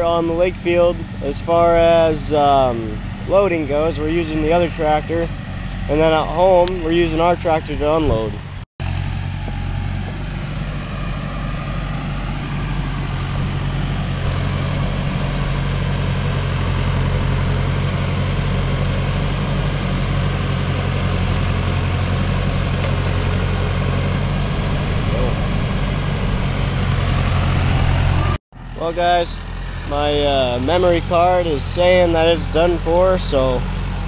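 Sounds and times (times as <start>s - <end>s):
tractor diesel engine running: 0.0s - 34.0s.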